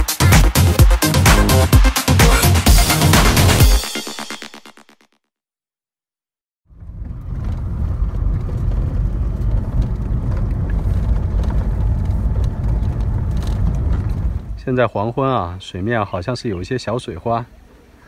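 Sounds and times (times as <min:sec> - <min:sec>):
car engine and road rumble: 0:06.7 - 0:14.9.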